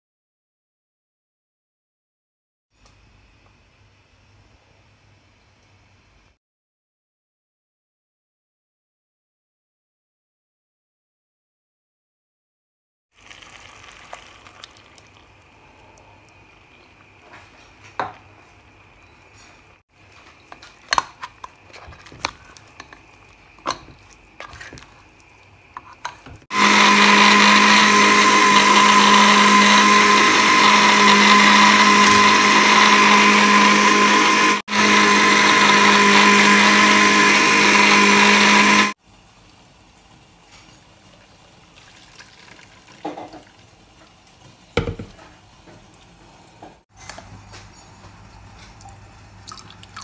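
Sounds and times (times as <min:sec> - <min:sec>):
ladle scraping metal pot: 0:20.0 - 0:33.7
electric blender running: 0:20.2 - 0:39.0.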